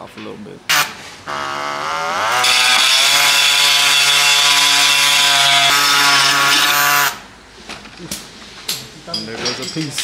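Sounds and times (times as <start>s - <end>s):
rotary tool whining while cutting: 1.3s - 7.2s.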